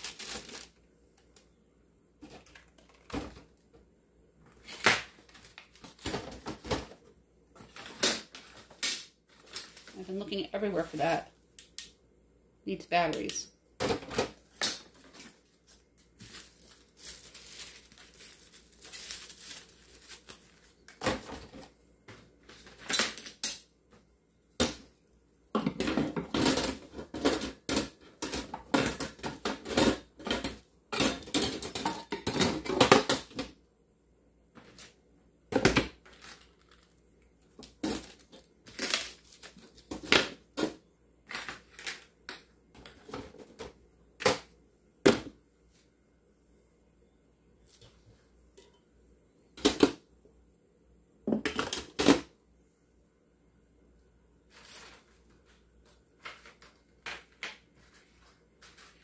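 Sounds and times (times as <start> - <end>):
items clattering in a drawer: 2.2 - 3.6, 25.6 - 33.6.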